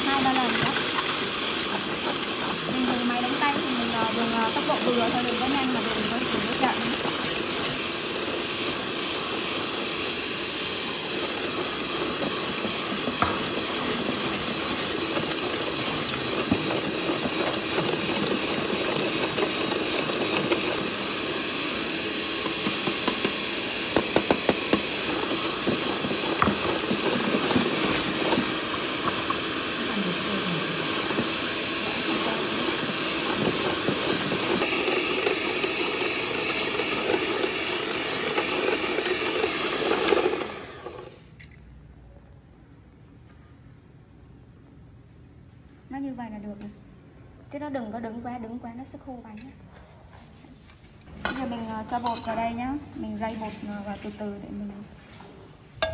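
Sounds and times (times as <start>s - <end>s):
electric hand mixer running: 0.0s - 41.3s.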